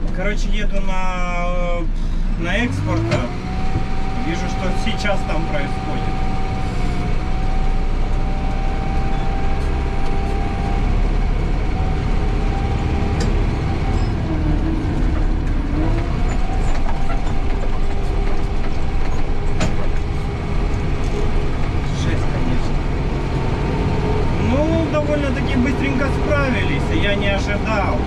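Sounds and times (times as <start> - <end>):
diesel engine low rumble: 0.0 - 28.0
drivetrain whine: 1.8 - 28.0
sharp knocks and rattles: 12.1 - 22.9.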